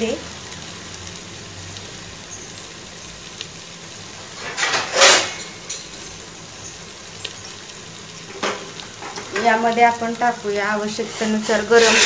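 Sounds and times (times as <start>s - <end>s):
gravy sizzling faintly: 0.0s - 12.0s.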